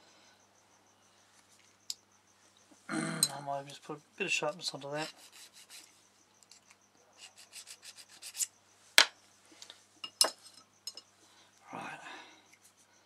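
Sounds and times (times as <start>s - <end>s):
blade rasping on sharpener: 5.0s - 5.9s, 7.2s - 8.5s.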